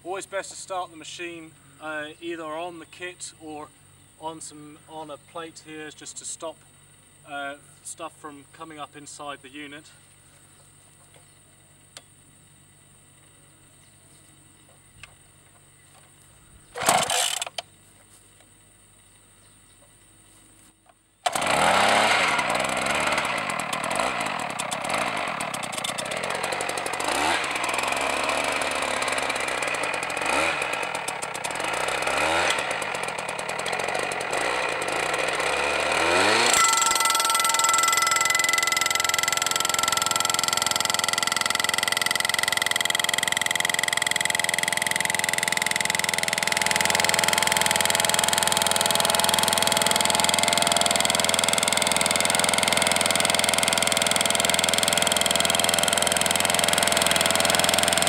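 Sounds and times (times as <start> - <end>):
starter pull burst: 16.8 - 17.7, 21.2 - 58.0
drilling rig engine hammering: 21.3 - 58.0
steady ringing tones: 22.4 - 30.2, 32.6 - 58.0.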